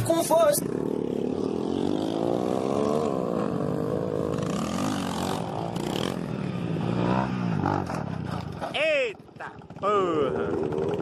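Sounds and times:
small motorcycle engine revving: 0.6s - 8.6s.

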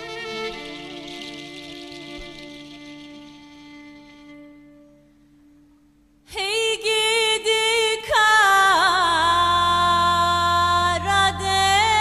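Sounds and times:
low sustained accompaniment: 0.0s - 6.3s
woman singing a folk song: 6.3s - 12.0s.

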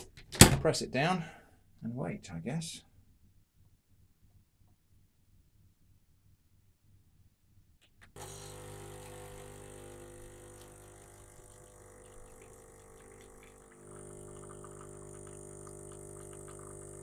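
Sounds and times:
espresso machine pump humming: 8.2s - 17.0s
espresso pouring into glass: 8.2s - 17.0s.

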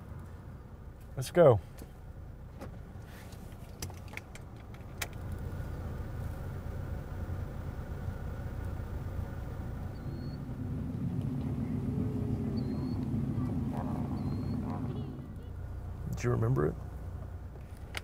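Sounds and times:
car driving off: 4.2s - 18.0s.

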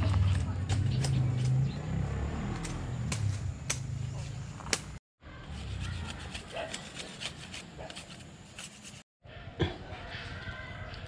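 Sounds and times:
knife shaving a stick: 5.4s - 9.1s.

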